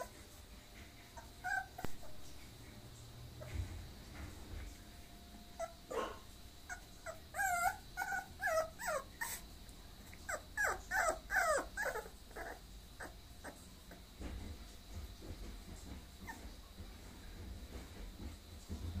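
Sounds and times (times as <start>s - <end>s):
puppy whimpering: 1.1s - 2.4s, 5.6s - 9.4s, 10.1s - 14.0s.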